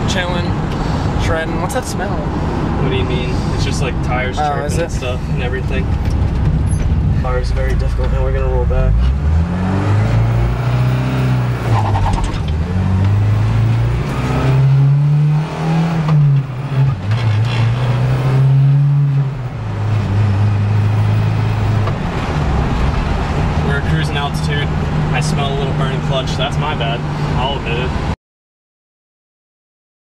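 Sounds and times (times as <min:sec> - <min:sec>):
sports car engine revving: 0:07.8 - 0:28.1.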